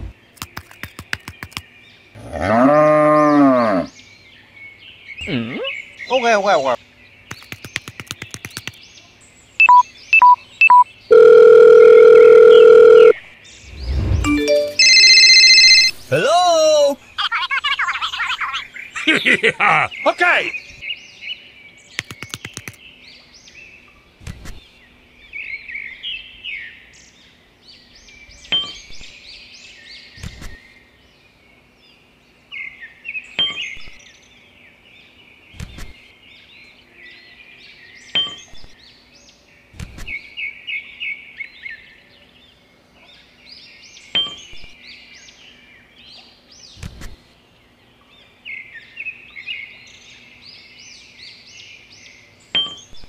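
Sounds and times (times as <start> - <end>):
small birds chirping: 0.0 - 2.6, 3.3 - 11.2, 13.3 - 53.0
wooden sticks clicking: 0.4 - 1.6, 7.3 - 8.8, 22.0 - 22.8.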